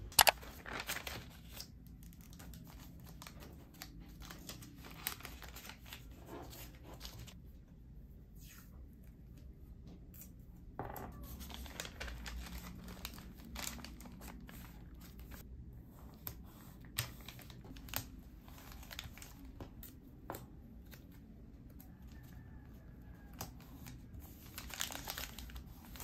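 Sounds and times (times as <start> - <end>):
paper packaging rustling: 0.0 - 7.4, 11.2 - 15.5, 17.0 - 19.6, 23.8 - 26.0
sharp clicks: 0.1 - 0.4.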